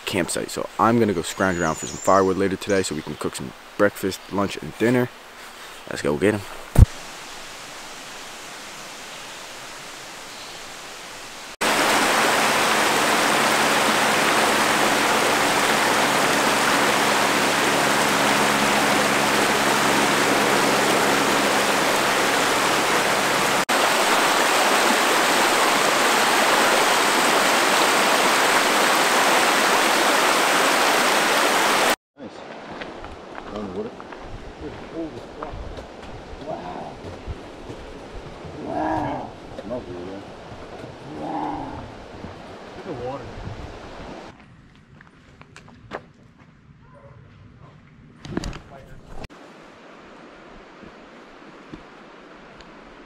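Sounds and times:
outdoor hiss: 0.0 - 32.0
water rushing over stones: 6.2 - 33.0.

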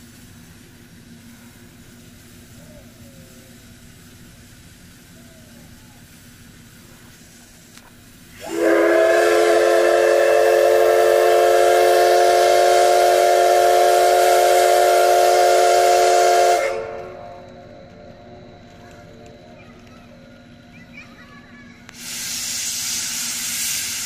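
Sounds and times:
hiss of steam: 0.0 - 17.2, 21.8 - 24.0
steam locomotive whistle: 8.4 - 17.5.

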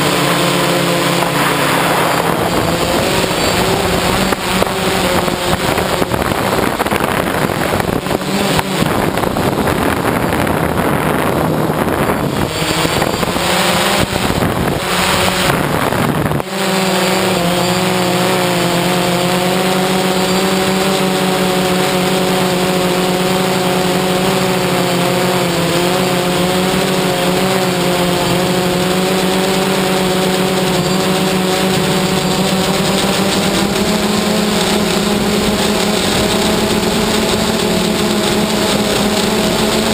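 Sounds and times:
wind buffeting microphone: 0.0 - 18.3
drone propellers humming: 0.0 - 39.9.

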